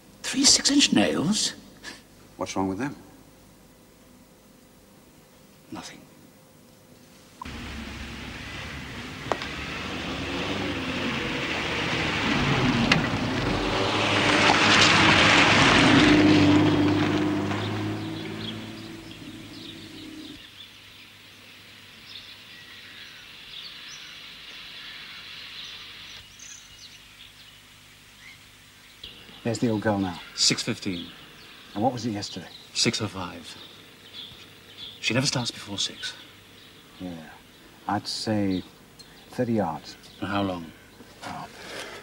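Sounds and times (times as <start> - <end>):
vehicle engine passing: 7.5 - 20.4
birds chirping: 15.9 - 41.6.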